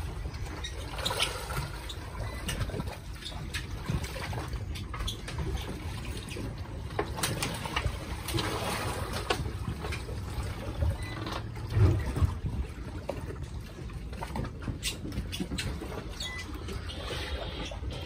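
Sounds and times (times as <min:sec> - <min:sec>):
water lapping against boat hull: 0:00.0 - 0:18.0.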